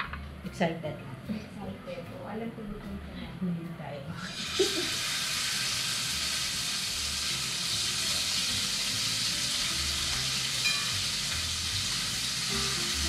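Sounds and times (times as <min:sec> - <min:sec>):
fish sizzling in hot oil: 0:04.2 - 0:13.0.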